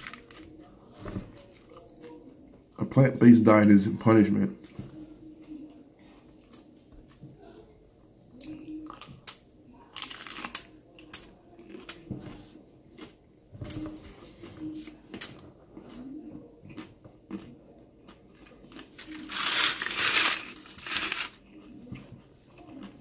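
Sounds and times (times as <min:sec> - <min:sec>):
crunching taco shell and chewing: 0:00.0 - 0:00.8, 0:08.4 - 0:13.4, 0:14.1 - 0:23.0.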